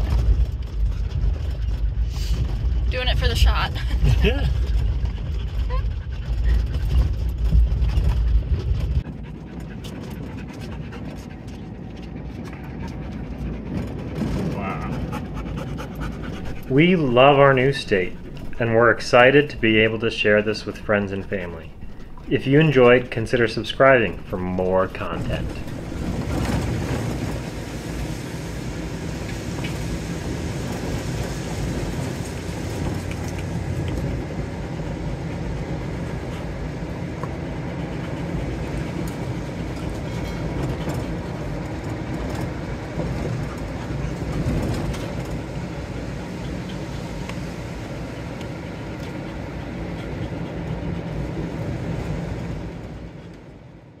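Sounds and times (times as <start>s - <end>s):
rattles: 0.0s - 28.2s
pickup truck driving rumble: 0.0s - 54.0s.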